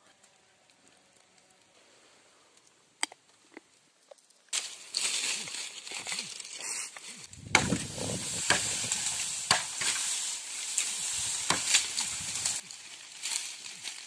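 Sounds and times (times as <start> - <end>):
machete chopping tree trunk: 7.4 - 10.1, 11.4 - 12.2
steady hiss: 7.7 - 14.0.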